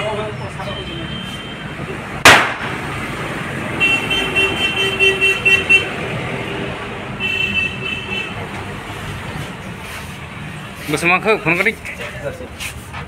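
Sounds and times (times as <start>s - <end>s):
party popper bang: 2.2s - 2.8s.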